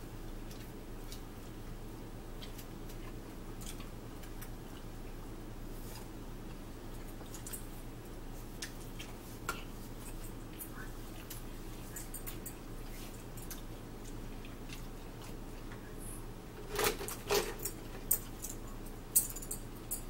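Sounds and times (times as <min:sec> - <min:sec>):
steady low hum: 0:00.0 - 0:20.0
close-up chewing: 0:00.2 - 0:16.1.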